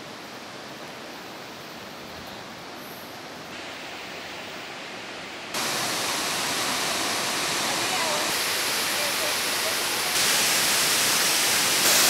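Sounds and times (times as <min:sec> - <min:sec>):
waterfall rushing: 0:03.5 - 0:12.0.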